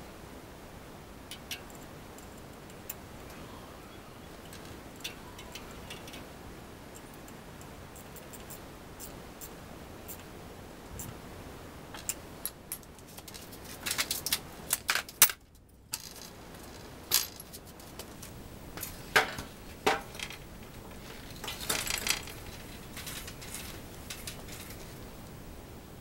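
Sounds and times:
metallic clinks of bicycle parts: 4.4 - 6.3, 12.0 - 25.2.

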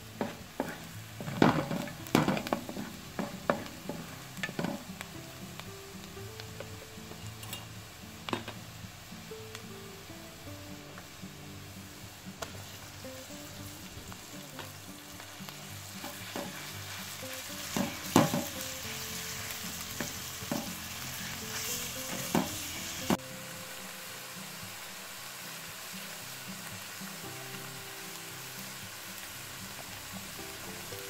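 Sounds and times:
minced meat sizzling in oil: 0.0 - 31.0
soft background music: 0.0 - 31.0
spoon knocking against pan: 0.2 - 4.8, 17.7 - 18.6.

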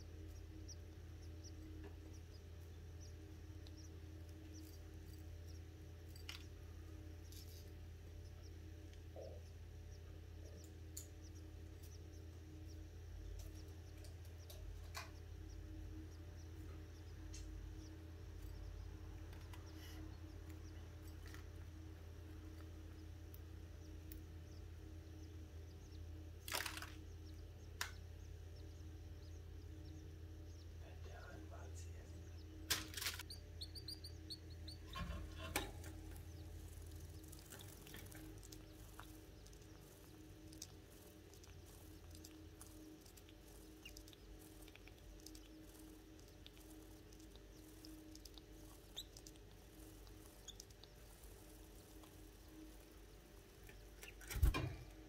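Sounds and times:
birds cheeping: 0.0 - 55.0
low steady hum: 0.0 - 55.0
nestlings peeping: 0.0 - 55.0
small scratching sounds: 7.2 - 7.9, 32.7 - 54.6.

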